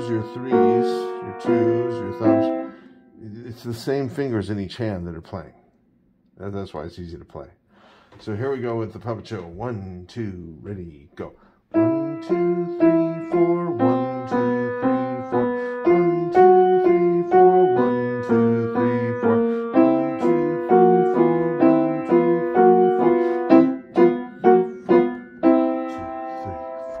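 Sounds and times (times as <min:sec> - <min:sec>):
upright piano playing: 0:00.0 - 0:02.9, 0:11.7 - 0:27.0.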